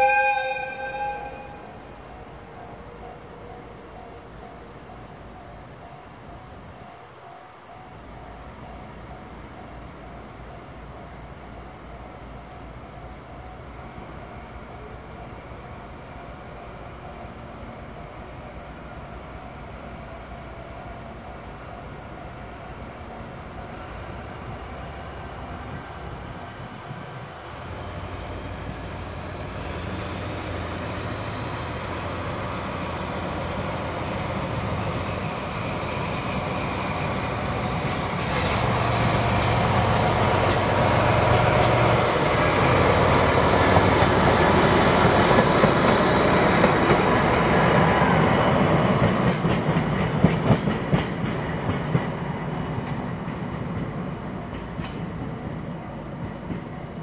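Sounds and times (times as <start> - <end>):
diesel locomotive engine drone: 0.0 - 57.0
train wheel clicks over rail joints: 37.1 - 42.0, 48.6 - 57.0.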